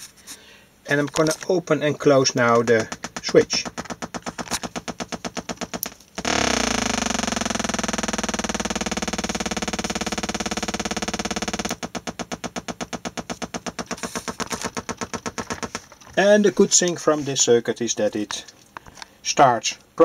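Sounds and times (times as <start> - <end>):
rapid electronic pulses: 2.4 - 16.0
loud steady buzzing tone: 2.8 - 16.0.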